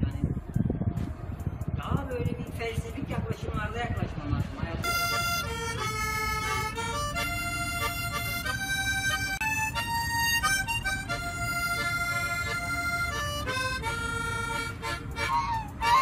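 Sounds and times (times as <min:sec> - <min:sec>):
harmonica slow melody: 0:04.8 - 0:16.0.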